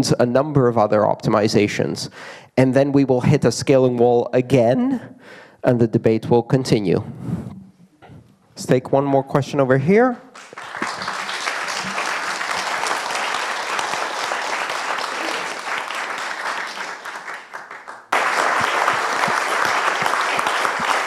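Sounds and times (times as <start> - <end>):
audience clapping: 10.3 - 21.0.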